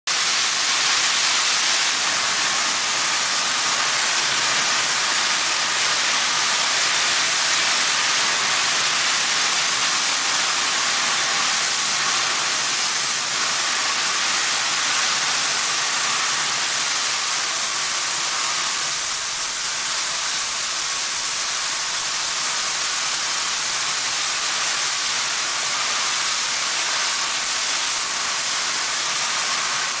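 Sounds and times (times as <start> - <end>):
furnace hiss: 0.1 - 30.0.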